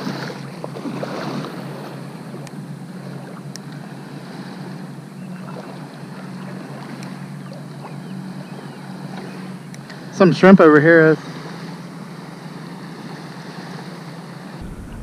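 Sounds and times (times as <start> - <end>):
water sloshing around legs: 0.0 - 10.2
steady low hum: 14.6 - 15.0.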